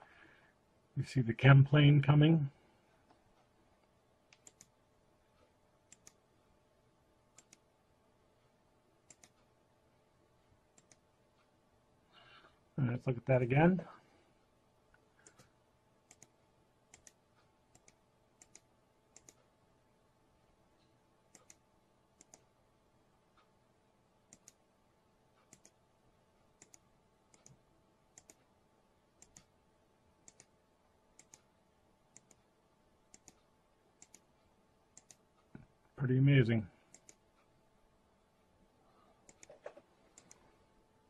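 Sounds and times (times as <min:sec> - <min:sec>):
faint steady hum: 0:00.0 - 0:41.0
computer mouse clicking: 0:04.3 - 0:04.8, 0:05.4 - 0:06.2, 0:07.3 - 0:07.7, 0:09.0 - 0:09.5, 0:10.7 - 0:11.5, 0:15.2 - 0:15.5, 0:16.1 - 0:19.5, 0:21.3 - 0:21.6, 0:22.2 - 0:22.5, 0:24.3 - 0:24.6, 0:25.4 - 0:25.8, 0:26.6 - 0:28.5, 0:29.2 - 0:29.5, 0:30.2 - 0:30.6, 0:31.2 - 0:31.5, 0:32.1 - 0:32.5, 0:33.1 - 0:35.5, 0:36.9 - 0:37.5, 0:39.2 - 0:40.5.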